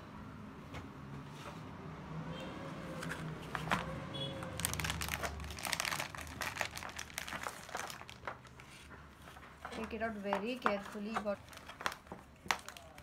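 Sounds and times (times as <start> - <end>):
packaging crinkling and rustling: 3.0 - 13.0.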